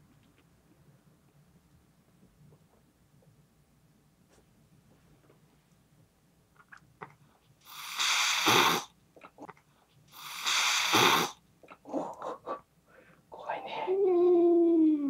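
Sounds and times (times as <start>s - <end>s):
cat hissing: 7.6s - 9.5s, 10.1s - 12.6s.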